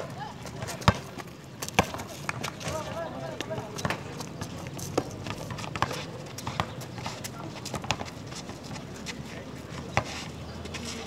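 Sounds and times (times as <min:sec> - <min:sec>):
basketball bouncing on asphalt: 0:00.4 - 0:08.9.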